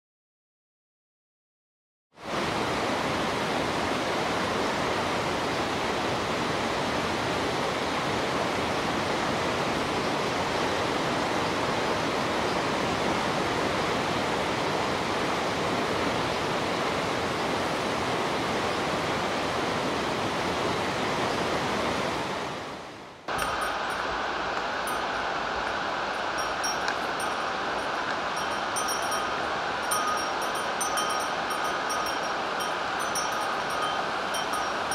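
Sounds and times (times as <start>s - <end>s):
waterfall rushing: 23.3s - 34.9s.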